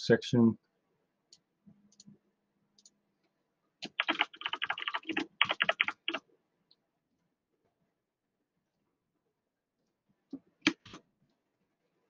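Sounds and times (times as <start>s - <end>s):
typing on a computer keyboard: 3.8s - 6.2s.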